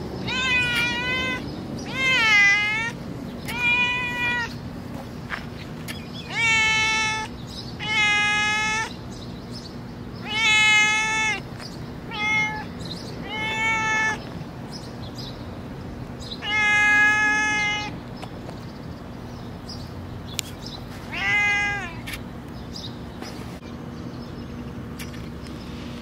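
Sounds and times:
cat meowing: 0:00.2 - 0:04.6, 0:06.2 - 0:09.0, 0:10.2 - 0:11.4, 0:12.0 - 0:14.3, 0:16.3 - 0:18.0, 0:21.1 - 0:22.1.

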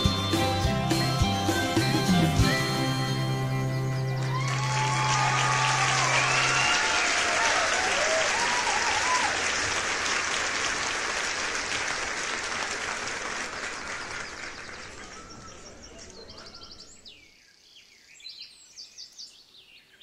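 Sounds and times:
band holding chord: 0:00.0 - 0:04.4
group applause: 0:04.0 - 0:16.2
short cheers: 0:04.2 - 0:09.6.

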